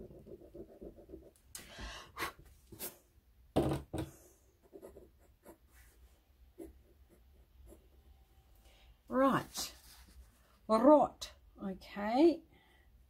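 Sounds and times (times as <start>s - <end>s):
pencil scratching on paper: 0.0s - 1.4s, 4.6s - 6.0s, 6.6s - 8.0s, 9.4s - 10.3s.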